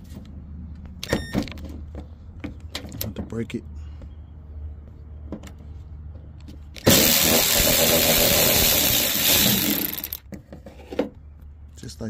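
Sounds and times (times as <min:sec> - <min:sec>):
cordless power ratchet buzzing: 0:06.8 - 0:10.2.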